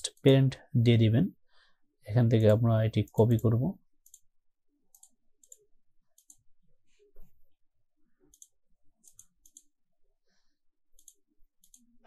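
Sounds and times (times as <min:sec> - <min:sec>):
computer mouse clicks: 0:03.1 - 0:04.3, 0:04.9 - 0:06.5, 0:08.2 - 0:09.8, 0:10.9 - 0:12.0.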